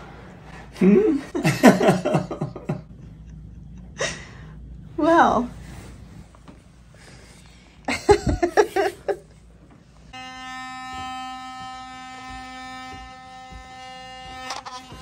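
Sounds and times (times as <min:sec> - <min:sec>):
person laughing: 0:00.7 - 0:04.4, 0:07.8 - 0:09.3
electric toothbrush buzzing: 0:10.0 - 0:15.0.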